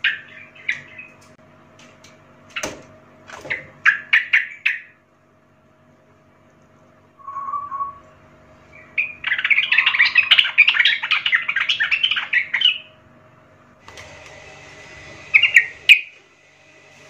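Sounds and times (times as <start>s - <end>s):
bird singing: 0.0s - 1.2s, 3.6s - 5.0s, 7.2s - 13.0s, 15.3s - 16.1s.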